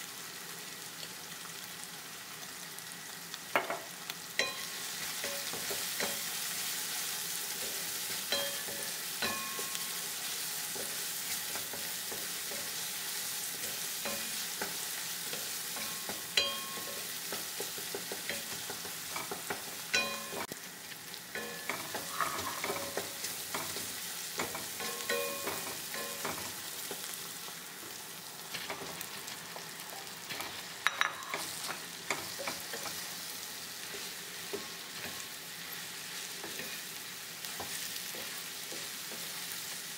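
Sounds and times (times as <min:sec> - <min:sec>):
food sizzling in oil: 0:00.0 - 0:39.9
spatula scraping and knocking pan: 0:04.4 - 0:06.7, 0:07.4 - 0:20.5, 0:21.4 - 0:27.1, 0:36.0 - 0:39.7.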